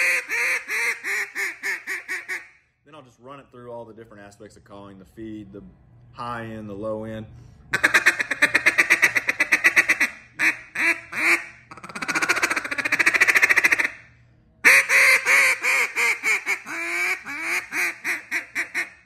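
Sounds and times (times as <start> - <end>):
duck call quacks: 0.0 - 2.5, 7.7 - 14.0, 14.6 - 19.0.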